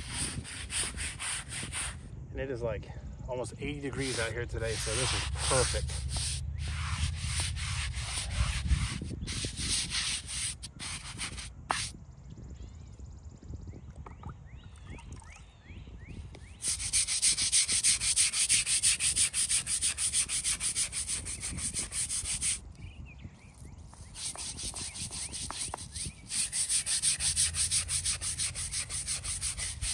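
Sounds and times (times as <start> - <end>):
scrubbing stone by hand: 3.7 - 11.9, 16.6 - 22.6, 23.8 - 29.9.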